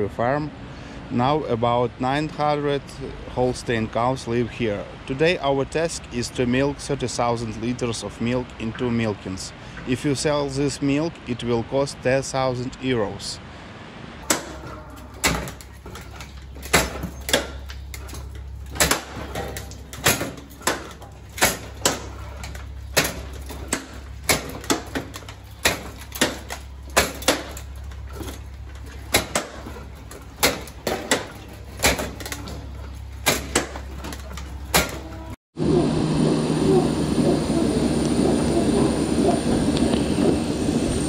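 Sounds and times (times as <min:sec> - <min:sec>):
steady low hum: 0:13.4 - 0:41.0
sharp knocks and clanks: 0:14.2 - 0:35.4.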